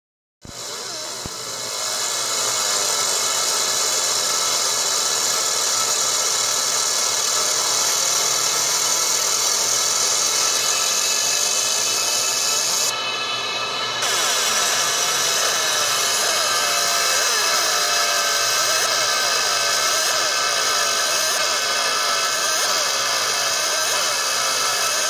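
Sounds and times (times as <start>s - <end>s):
laser engraver high hiss: 0.6s - 25.0s.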